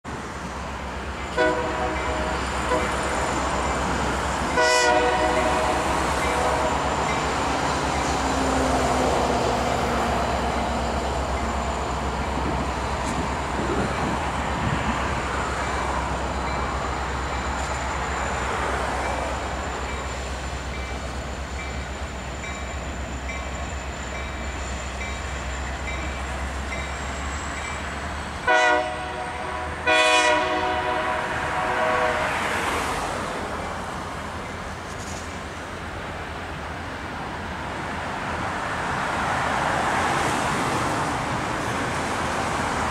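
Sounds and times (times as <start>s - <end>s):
train cars rumbling: 0.1s - 42.9s
train horn blasts: 1.3s - 3.4s, 4.5s - 7.1s, 28.4s - 32.9s.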